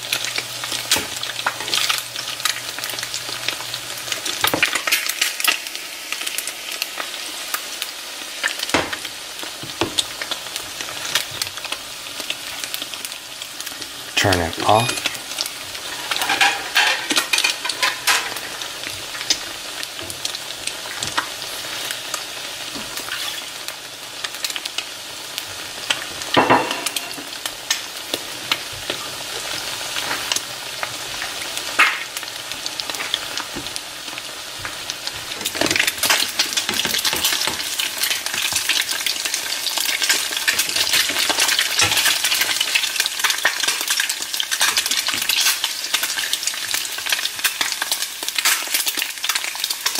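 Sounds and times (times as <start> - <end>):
eggs sizzling in frying pan: 0.0 - 49.9.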